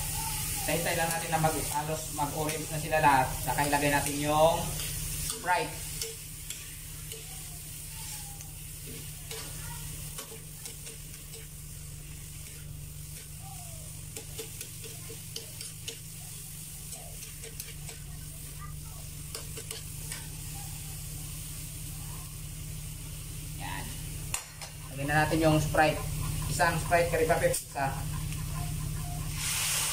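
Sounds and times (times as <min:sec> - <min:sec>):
shrimp sizzling in a wok: 0:00.0 - 0:29.9
metal ladle scraping a pan: 0:16.9 - 0:18.1, 0:19.3 - 0:20.4.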